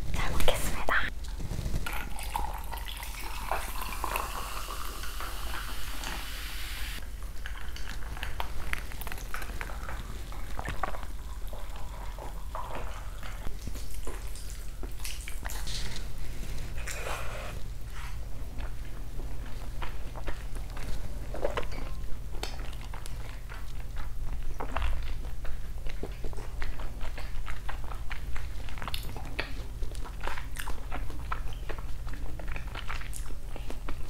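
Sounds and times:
steady hiss: 0.0 - 7.0.

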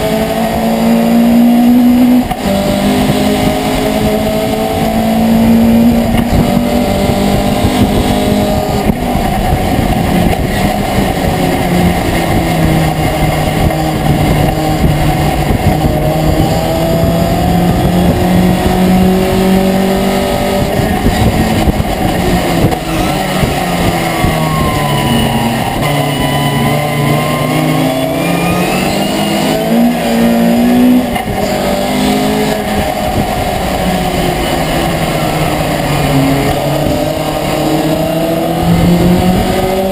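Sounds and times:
truck engine revving: 0.0 - 39.9.

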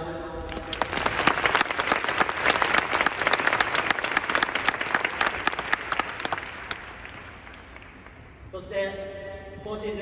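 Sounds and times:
crowd applauding: 0.5 - 8.3.

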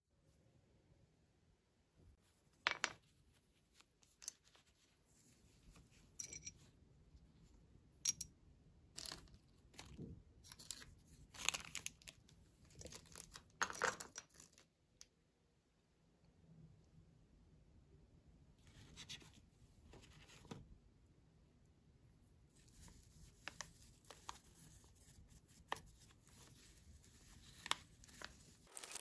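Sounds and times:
plastic wrappers crinkling: 26.4 - 29.0.

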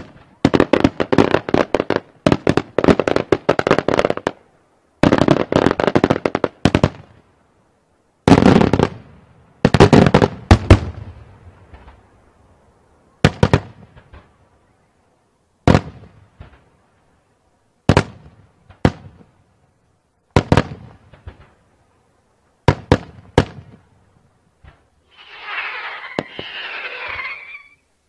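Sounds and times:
fireworks bursting with bangs: 0.0 - 4.4, 5.0 - 7.2, 8.2 - 12.1, 13.2 - 14.4, 15.6 - 16.8, 17.8 - 19.4, 20.3 - 21.6, 22.6 - 23.9, 24.6 - 27.8.

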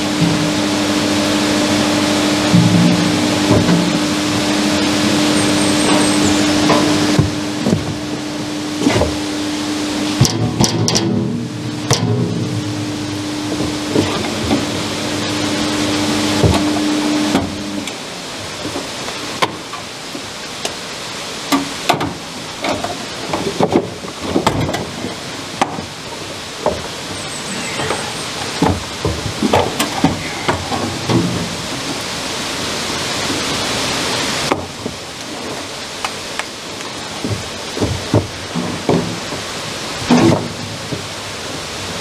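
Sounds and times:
rushing water: 0.0 - 42.0
knocks and clanks of cables: 10.2 - 12.7, 13.5 - 14.8, 16.4 - 18.0, 21.5 - 25.9, 37.2 - 39.5
loud hiss: 25.3 - 34.5.

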